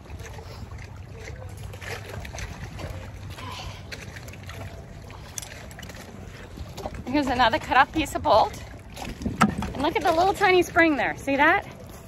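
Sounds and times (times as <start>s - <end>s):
water splashing and dripping: 0.0s - 12.0s
wind rumble on microphone: 5.1s - 12.0s.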